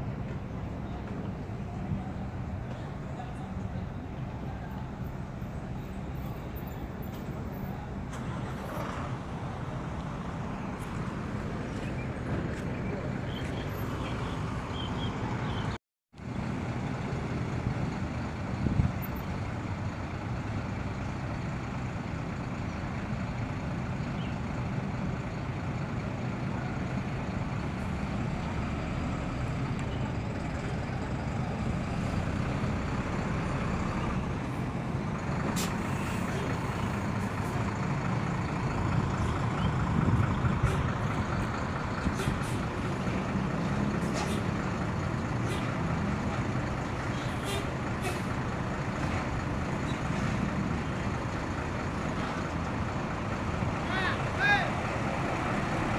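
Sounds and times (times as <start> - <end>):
diesel bus engine rumbling: 0.0 - 55.9.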